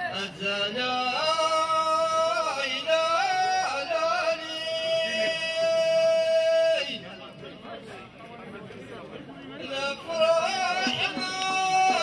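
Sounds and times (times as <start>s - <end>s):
man singing unaccompanied: 0.0s - 7.2s, 9.6s - 12.0s.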